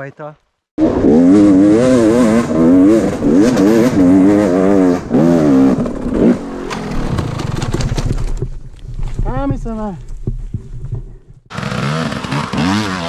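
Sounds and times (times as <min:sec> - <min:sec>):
motorcycle engine revving: 0:00.8 - 0:08.4, 0:11.4 - 0:13.0.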